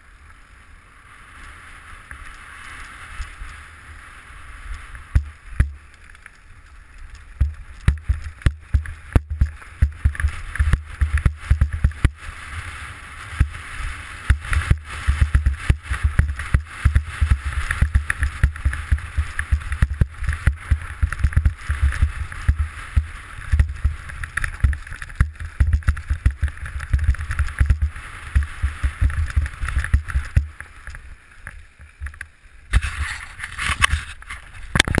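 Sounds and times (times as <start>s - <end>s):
tyre and wind noise: 0.0s - 35.0s
bike rattling knocks and thuds: 5.1s - 5.8s, 7.3s - 12.3s, 14.2s - 30.7s.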